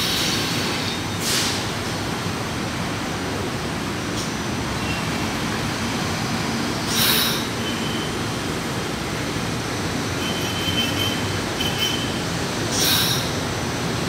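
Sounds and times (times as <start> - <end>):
loud hiss: 0.0 - 1.8, 6.8 - 7.6
subway train rumbling: 0.0 - 14.0
faint high brake squeal: 6.9 - 8.2, 12.8 - 13.3.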